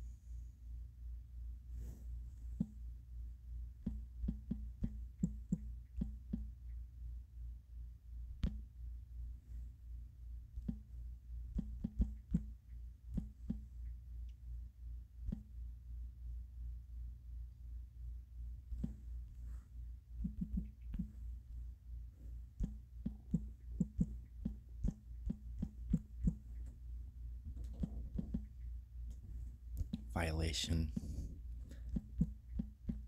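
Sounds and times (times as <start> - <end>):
low pulsing hum: 0.0 - 33.0
taps on phone screen: 3.8 - 6.5.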